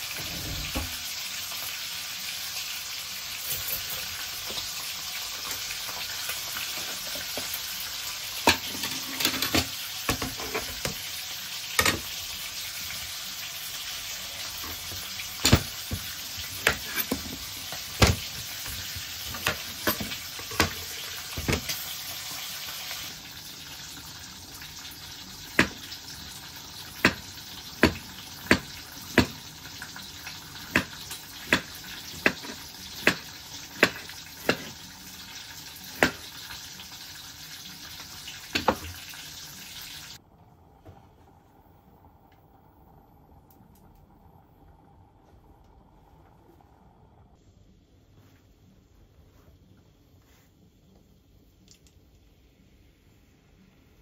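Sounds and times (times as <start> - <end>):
food sizzling in frying pan: 0.0 - 40.2.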